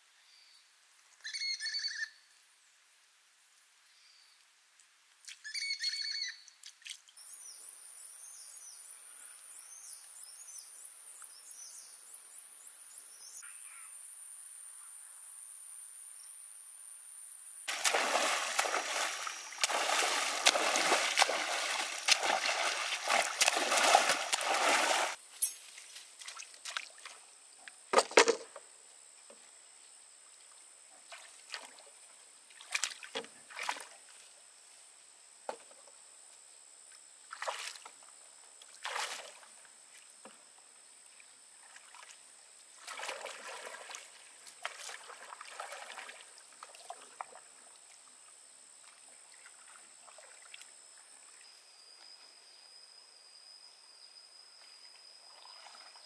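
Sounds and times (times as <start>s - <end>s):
high insect trill: 12.9s - 26.1s
paddle strokes splashing: 17.7s - 25.2s
water splashing and sloshing: 17.7s - 25.2s, 25.8s - 27.2s, 31.0s - 34.3s, 37.3s - 38.0s, 38.7s - 40.4s, 41.5s - 51.3s.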